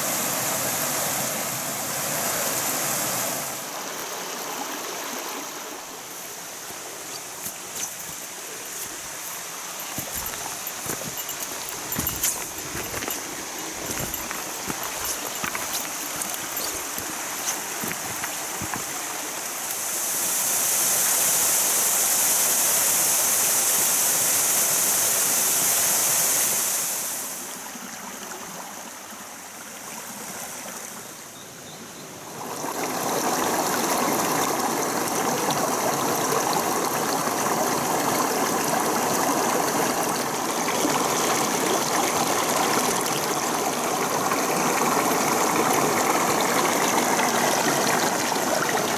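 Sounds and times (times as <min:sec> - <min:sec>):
stream running over rocks: 0:00.0 - 0:48.9
footsteps on stones: 0:06.7 - 0:19.2.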